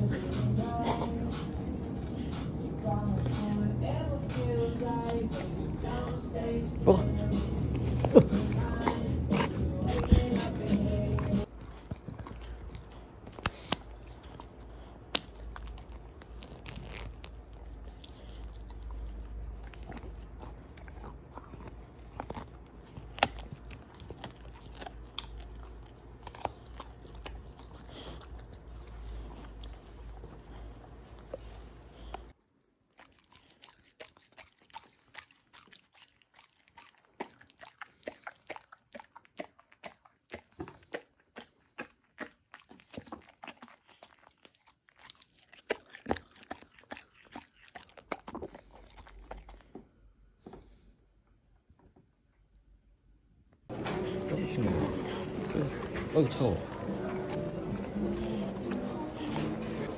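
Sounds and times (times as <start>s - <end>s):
steady low hum: 0.0s - 32.4s
dog chewing and crunching meat: 0.0s - 50.9s, 53.7s - 59.9s.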